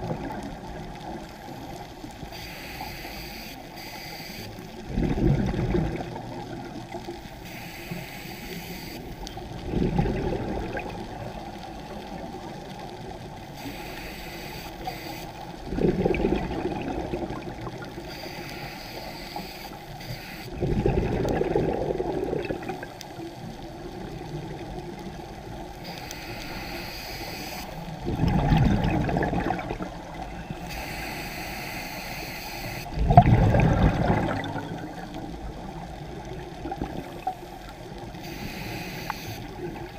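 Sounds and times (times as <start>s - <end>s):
exhaled bubbles gushing underwater: 0.0s - 1.8s, 4.7s - 7.2s, 9.2s - 13.5s, 15.4s - 18.1s, 20.5s - 25.9s, 27.8s - 30.7s, 32.9s - 39.9s
regulator inhalation hiss: 2.3s - 4.6s, 7.4s - 9.1s, 13.6s - 15.5s, 18.1s - 20.6s, 25.8s - 28.0s, 30.6s - 32.9s, 38.2s - 39.6s.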